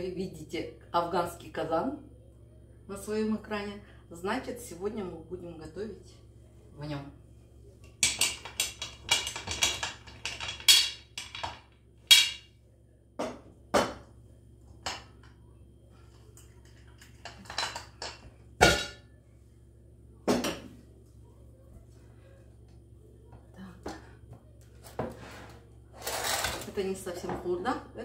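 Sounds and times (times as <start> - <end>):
metal cookware knocks: 17.4 - 19.0.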